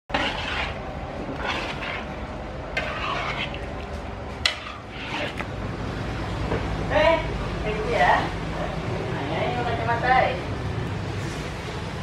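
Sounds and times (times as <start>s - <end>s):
metal spatula scraping wok: 0.1s - 5.5s.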